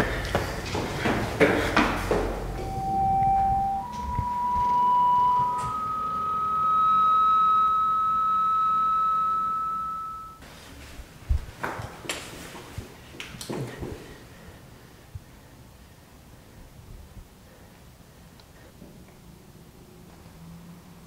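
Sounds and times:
electronic suspense tone: 2.4s - 10.4s.

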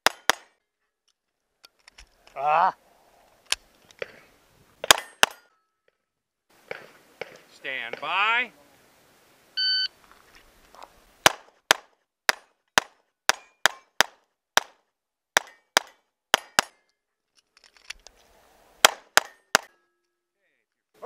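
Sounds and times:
pistol shots: 0.0s - 0.6s, 4.8s - 5.4s, 11.2s - 14.8s, 18.8s - 19.7s
gun handling noise: 1.0s - 2.4s, 3.2s - 6.0s, 16.5s - 18.3s.

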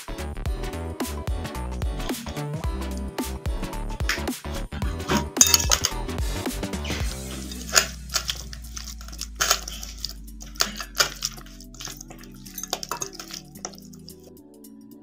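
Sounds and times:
soft background music: 0.0s - 15.0s
wet squelches of chicken wings: 6.9s - 14.2s.

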